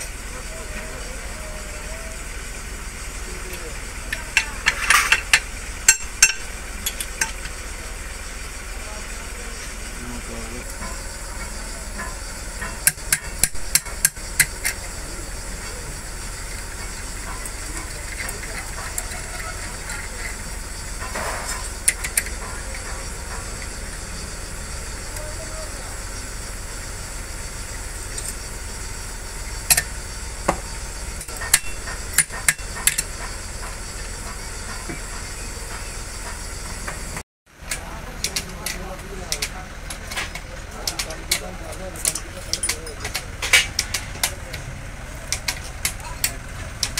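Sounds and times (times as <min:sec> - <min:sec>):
metal parts clinking: 0:04.1 - 0:07.4
metal-on-metal taps: 0:04.4 - 0:07.4.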